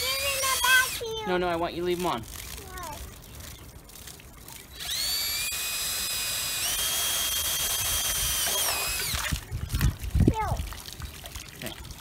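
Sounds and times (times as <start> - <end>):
cordless drill whining: 4.8 - 9.3.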